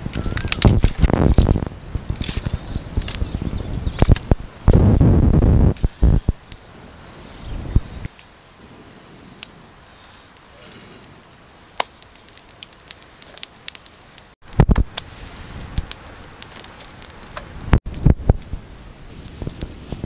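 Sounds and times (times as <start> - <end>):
wood fire crackling: 0.0 - 20.0
dull low thumps: 3.3 - 6.4.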